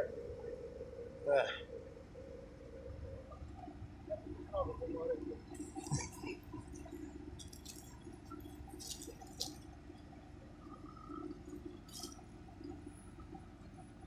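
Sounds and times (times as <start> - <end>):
crackling rustles: 5.4 - 13.4.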